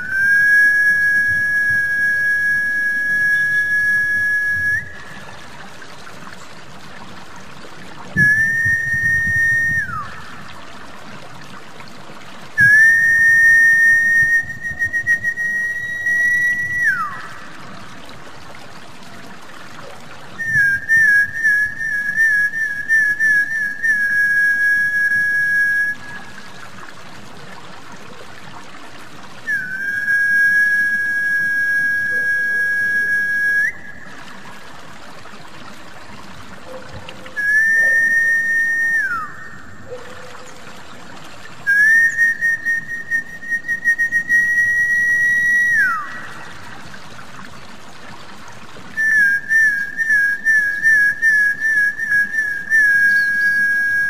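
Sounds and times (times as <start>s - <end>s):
high whistled calls: 0.0s - 5.4s, 8.2s - 10.5s, 12.6s - 17.6s, 20.3s - 26.4s, 29.4s - 34.2s, 36.6s - 40.7s, 41.6s - 46.8s, 48.9s - 54.0s
trickle of water: 0.0s - 54.0s.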